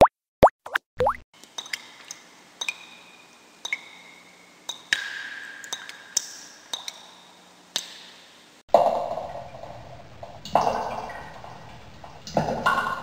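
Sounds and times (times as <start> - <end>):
water dripping: 3.6 - 8.0, 8.7 - 13.0.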